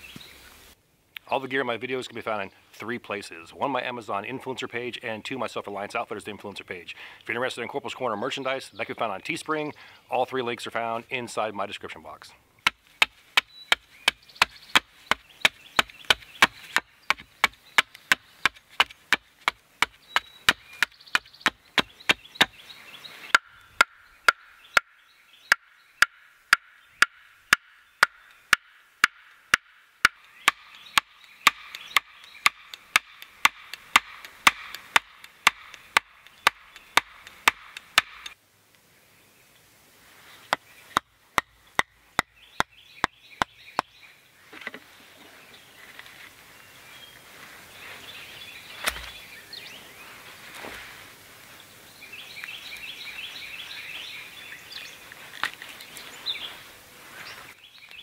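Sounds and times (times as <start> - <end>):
hatchet pounding wooden stake: 12.6 - 22.6, 23.3 - 24.9, 25.5 - 38.4, 40.5 - 43.9.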